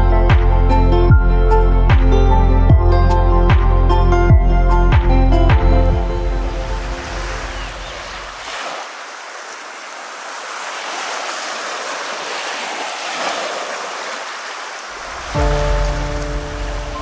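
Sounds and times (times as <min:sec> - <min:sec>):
small waves washing on sand: 0:06.3 - 0:17.0.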